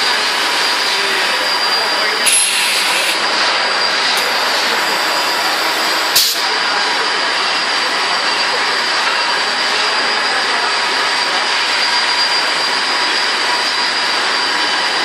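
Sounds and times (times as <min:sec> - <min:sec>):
machine whirring and hissing: 0:00.0 - 0:10.1
burst of released air: 0:02.2 - 0:03.2, 0:04.2 - 0:06.5
sharp pneumatic air blast: 0:02.2 - 0:03.2, 0:04.2 - 0:06.5.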